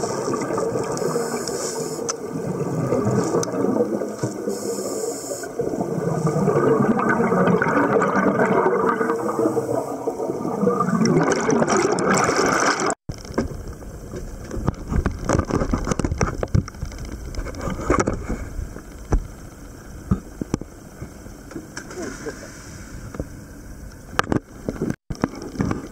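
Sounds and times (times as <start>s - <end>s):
water splashing: 0.0s - 19.3s
scuba bubbles gurgling underwater: 0.0s - 19.4s.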